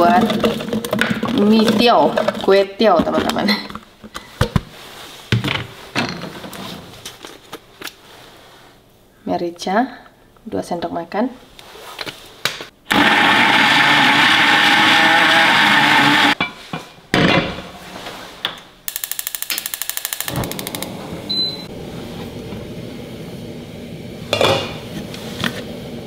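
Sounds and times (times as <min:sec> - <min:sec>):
blender grinding: 0:12.9 - 0:16.4, 0:18.9 - 0:21.0
gas hob igniter clicking: 0:18.9 - 0:21.0.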